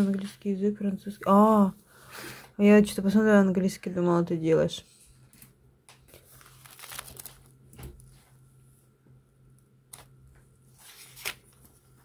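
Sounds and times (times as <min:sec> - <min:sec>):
paper pages rustling: 0:00.0 - 0:00.5, 0:05.9 - 0:08.3, 0:10.7 - 0:12.0
faint steady hum: 0:00.0 - 0:12.0.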